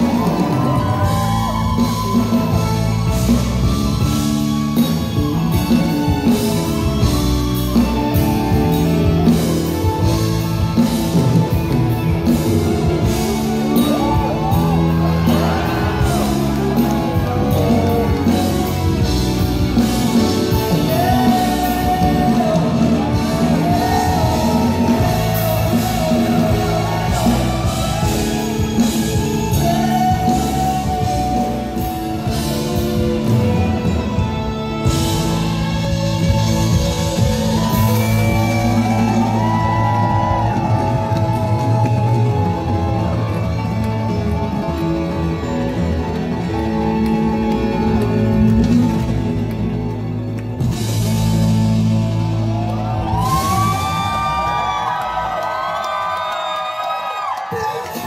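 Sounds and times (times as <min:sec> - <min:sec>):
audience shouting: 0:00.0 - 0:06.8, 0:07.6 - 0:34.0, 0:37.0 - 0:45.0, 0:52.3 - 0:58.0
steady drum beat: 0:00.0 - 0:54.7
live band music: 0:00.0 - 0:58.0
man singing: 0:13.8 - 0:19.1, 0:20.2 - 0:33.1.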